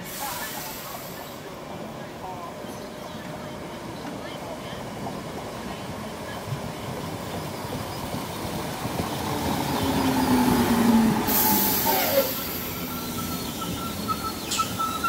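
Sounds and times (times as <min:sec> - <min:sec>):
sharp hiss: 0:00.0 - 0:01.4, 0:11.2 - 0:13.3
train running rumble: 0:00.0 - 0:15.0
whining squealing tones: 0:09.8 - 0:15.0.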